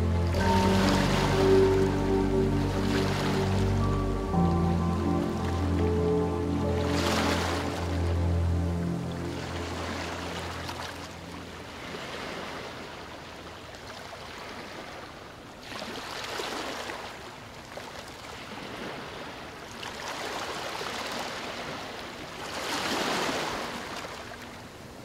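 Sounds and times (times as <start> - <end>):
sea surf on rocky shore: 0.3 - 3.8, 9.3 - 15.2, 18.3 - 24.2.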